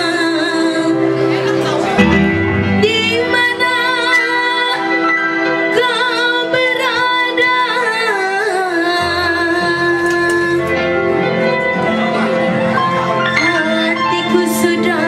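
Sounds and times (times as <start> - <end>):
woman singing into microphone: 0.0 - 2.0, 2.6 - 11.3, 13.3 - 15.0
bass: 0.0 - 8.2
electronic keyboard: 0.0 - 15.0.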